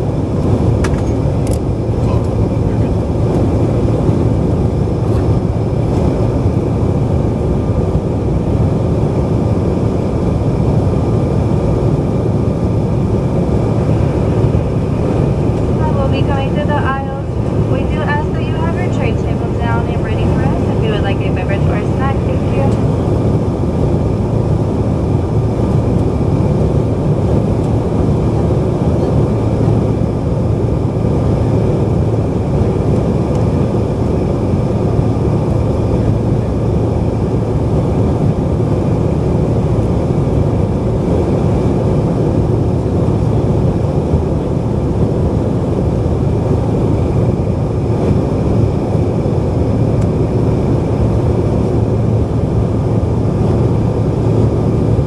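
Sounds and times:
aircraft cabin drone: 0:00.0 - 0:55.0
faint steady tones: 0:14.1 - 0:23.5.

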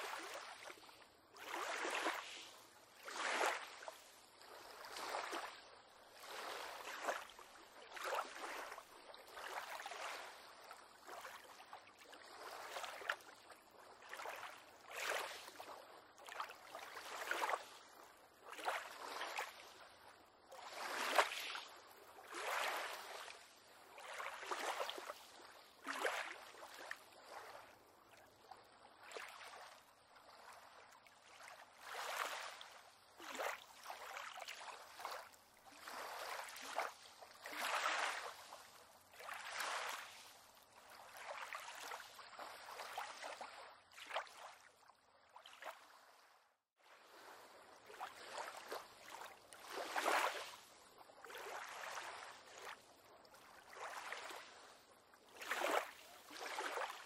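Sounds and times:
small waves lapping against pier: 0:00.0 - 0:57.0.

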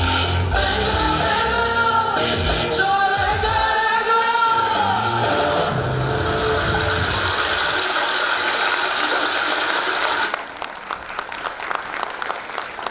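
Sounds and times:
dance music: 0:00.0 - 0:10.3
audience applause: 0:06.1 - 0:12.9.

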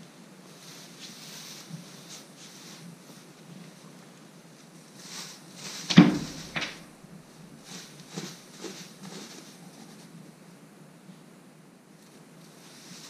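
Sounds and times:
sheep rustling in straw: 0:00.4 - 0:04.0, 0:04.8 - 0:10.1
sharp thump: 0:05.9 - 0:07.0
soft knocks: 0:05.9 - 0:07.1.

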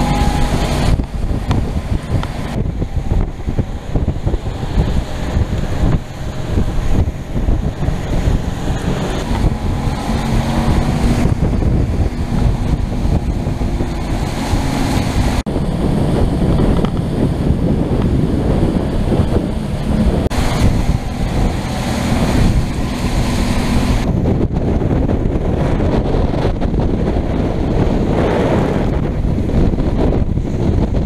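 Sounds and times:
outboard motor running: 0:00.0 - 0:31.0
rushing waves and spray: 0:00.0 - 0:31.0
wind buffeting microphone: 0:00.0 - 0:31.0.

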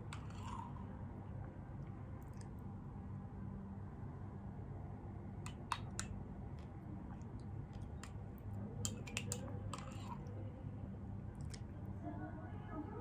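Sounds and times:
low steady hum: 0:00.0 - 0:13.0
spoon scraping glass jar: 0:00.1 - 0:00.8, 0:08.9 - 0:10.2.

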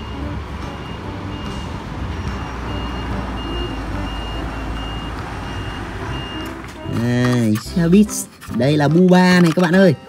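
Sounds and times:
high electronic warning beep: 0:00.0 - 0:07.1
bus engine running: 0:00.0 - 0:08.2
low traffic rumble: 0:00.0 - 0:08.5.

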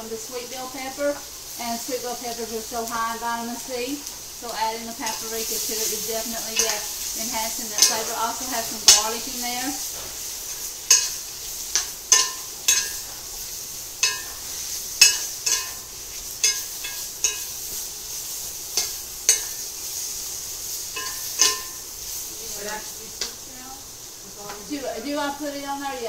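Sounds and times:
vegetables sizzling in pan: 0:00.0 - 0:26.0
metal spoon clinking on skillet: 0:05.0 - 0:09.3, 0:10.4 - 0:13.3, 0:14.0 - 0:17.8, 0:18.7 - 0:19.7, 0:20.9 - 0:21.9.

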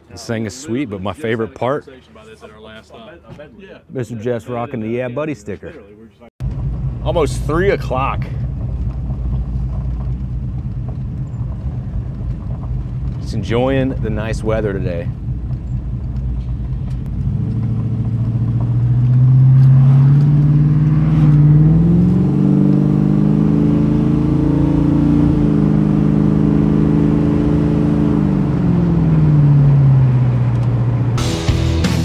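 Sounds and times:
car engine and exhaust: 0:06.4 - 0:32.0.

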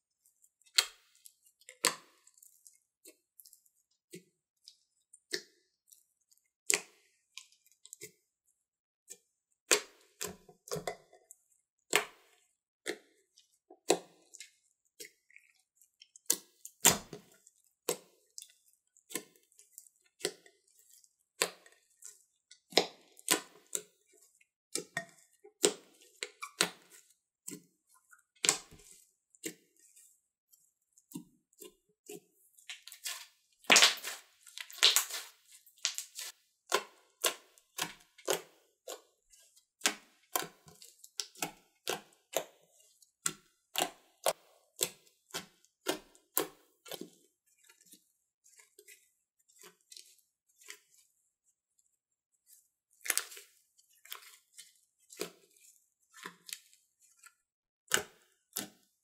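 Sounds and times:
slime squished with clicks and pops: 0:00.6 - 0:08.3, 0:09.1 - 0:48.0, 0:57.9 - 0:59.0
slime crackling: 0:32.6 - 0:42.0.

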